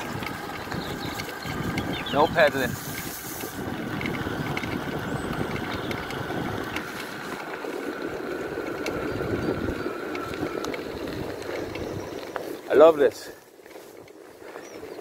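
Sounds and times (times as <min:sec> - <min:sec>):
electric motor whining: 0:00.0 - 0:12.7
wind on microphone: 0:00.0 - 0:12.7
tyre noise on path: 0:00.0 - 0:15.0.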